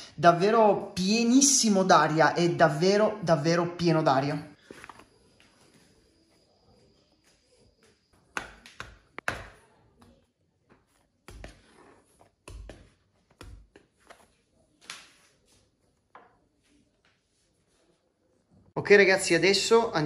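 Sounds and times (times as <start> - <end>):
dough balls thumping in plastic tray: 8.3 - 9.6, 12.4 - 13.9.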